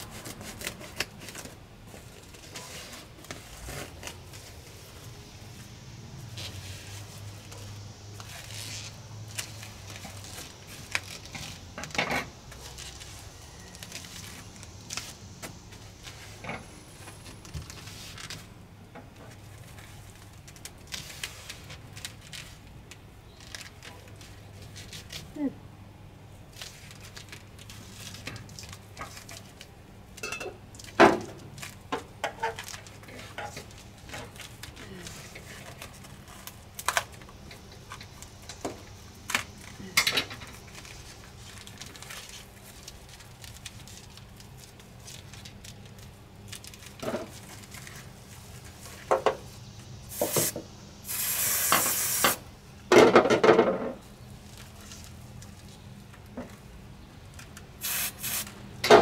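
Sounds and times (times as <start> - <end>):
scraping rustle: 0.0 - 18.5
short hiss: 50.1 - 52.4, 57.8 - 58.5.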